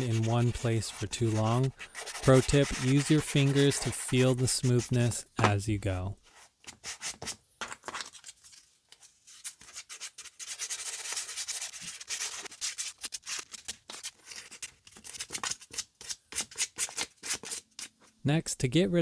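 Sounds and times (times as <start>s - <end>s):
sandpaper rubbing leather: 0.0s - 5.2s.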